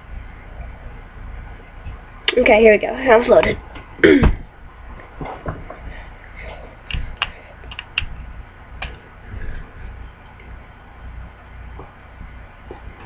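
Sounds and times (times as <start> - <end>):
faint low hum: 0.0 - 13.0
sharp clicks: 6.9 - 8.2.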